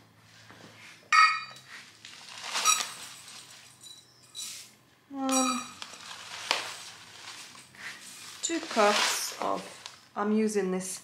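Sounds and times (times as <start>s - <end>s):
metal cup clinking on glass bowl: 1.2s - 1.6s, 5.3s - 5.8s
paper bag rustling: 1.7s - 3.9s, 5.3s - 10.3s
oats pouring: 1.9s - 4.7s, 5.3s - 10.2s.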